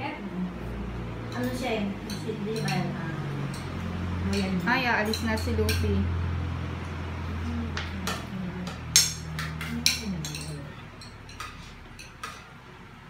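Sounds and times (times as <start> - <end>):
dishes and cutlery clinking: 1.3 - 6.0, 7.8 - 12.6.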